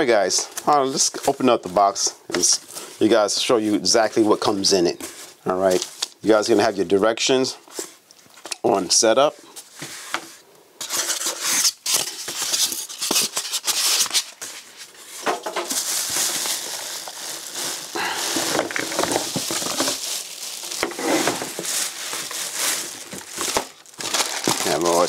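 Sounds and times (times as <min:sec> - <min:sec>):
plastic wrap crinkling: 0:00.0 - 0:07.0, 0:11.0 - 0:25.0
foam and cardboard scraping: 0:20.8 - 0:23.4.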